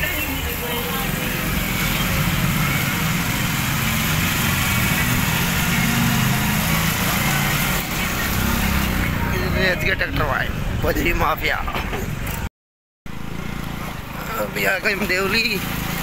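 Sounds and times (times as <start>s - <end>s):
road noise: 0.0s - 12.5s, 13.1s - 16.0s
small motorcycle engine running: 0.1s - 9.8s, 13.1s - 16.0s
wind: 7.8s - 12.5s.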